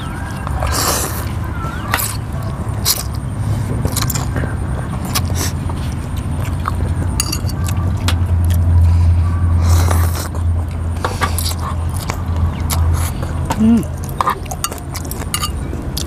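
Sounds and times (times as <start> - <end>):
low rumble: 0.0 - 16.0
spoons clinking on glass bowls: 7.2 - 7.7, 14.6 - 15.7.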